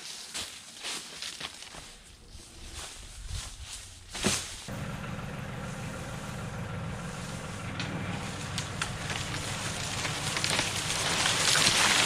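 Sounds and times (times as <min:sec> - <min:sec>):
tractor engine running: 0:04.0 - 0:12.0
wood snapping: 0:06.2 - 0:12.0.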